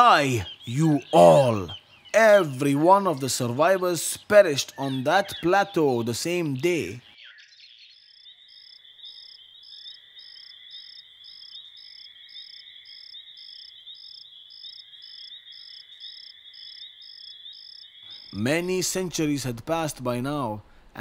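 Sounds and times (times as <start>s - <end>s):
crickets chirping: 7.6s - 18.6s.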